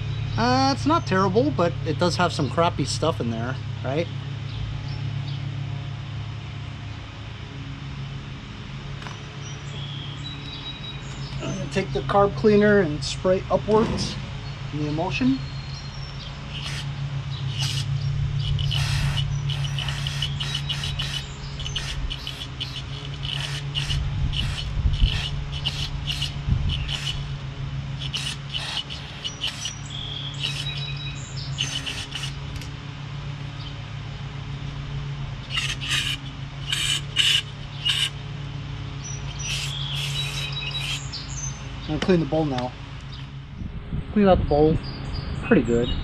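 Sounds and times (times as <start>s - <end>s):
birds chirping: 0.0s - 5.6s, 6.8s - 46.0s
steady low hum: 0.0s - 46.0s
dull low bumps: 13.6s - 16.4s.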